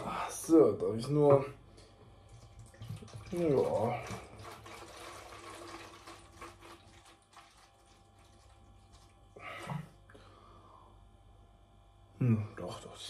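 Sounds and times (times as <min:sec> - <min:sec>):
liquid glugging and splashing: 0:01.7 - 0:10.0.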